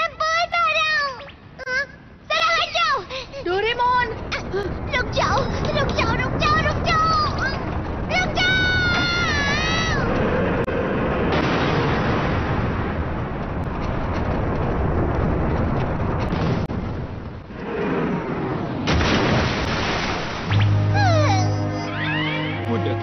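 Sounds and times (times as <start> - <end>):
explosions rumbling and crashing: 6.0 - 21.2.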